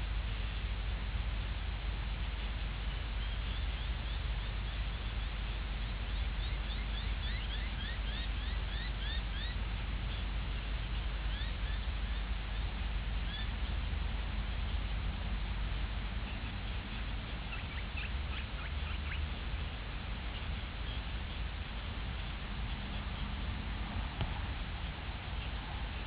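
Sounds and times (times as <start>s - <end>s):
low hum: 0.0s - 26.0s
steady hiss: 0.0s - 26.0s
bird chirping: 3.2s - 10.3s, 11.2s - 13.8s, 16.2s - 19.5s, 20.2s - 23.6s.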